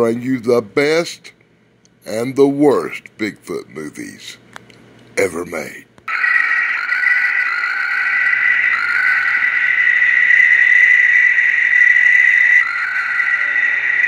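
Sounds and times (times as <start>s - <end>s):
chorus of calling frogs: 6.1s - 14.0s.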